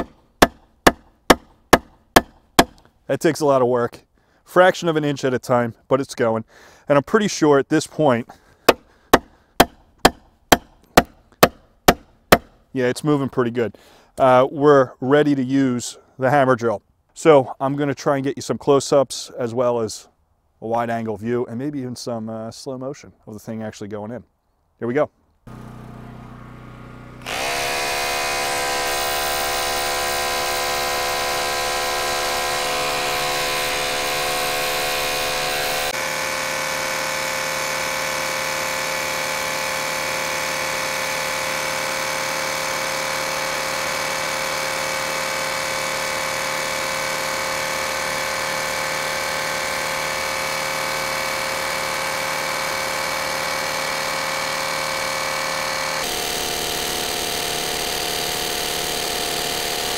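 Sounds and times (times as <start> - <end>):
rotary hammer running: 0.0 - 2.8, 27.2 - 59.9.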